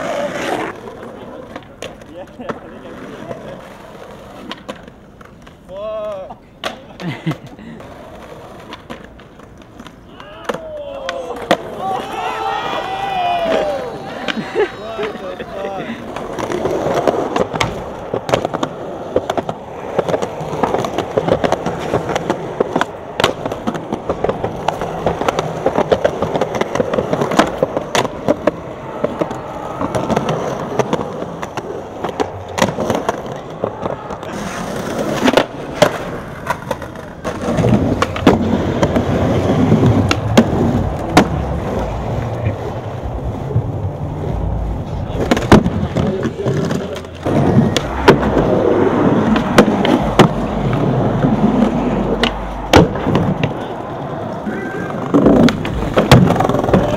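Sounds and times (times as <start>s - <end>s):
skateboard clacking: 0.0s - 56.9s
skateboard wheels rolling on pavement: 0.0s - 56.9s.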